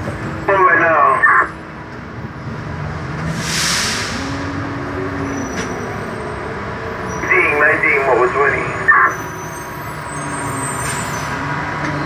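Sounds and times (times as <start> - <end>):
bus engine running: 0.0 - 12.0
hissing air burst: 3.3 - 4.3.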